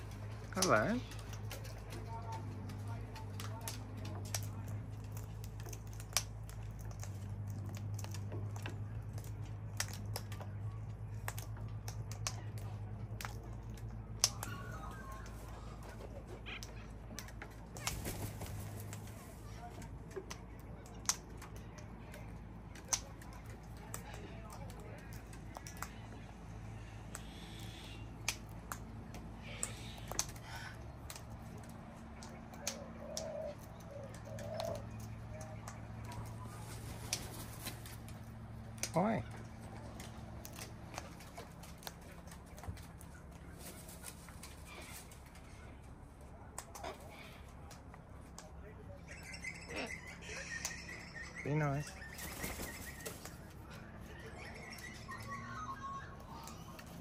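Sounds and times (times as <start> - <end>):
steady low hum: 0.0 - 57.0
bird beak cracking seed: 0.6 - 15.3, 19.8 - 26.2, 27.0 - 36.4.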